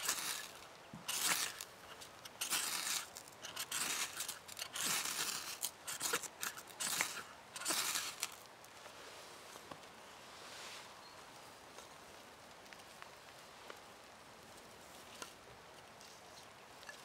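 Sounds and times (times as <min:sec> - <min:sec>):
knife scraping ferrocerium rod: 0:00.0 - 0:08.5.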